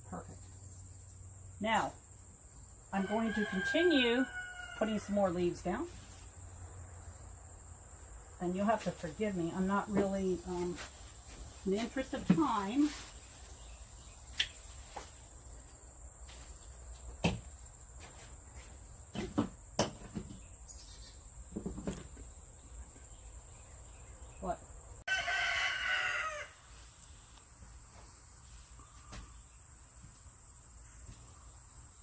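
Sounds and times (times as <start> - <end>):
rooster crowing: 3.0 - 5.1, 25.1 - 26.7
leaves and fabric rustling: 8.4 - 19.3.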